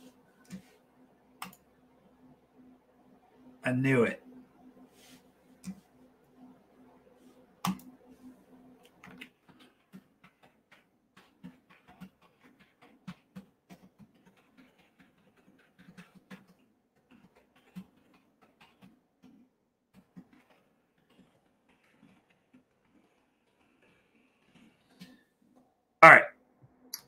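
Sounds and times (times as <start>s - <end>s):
keyboard typing clicks: 7.6s - 8.0s.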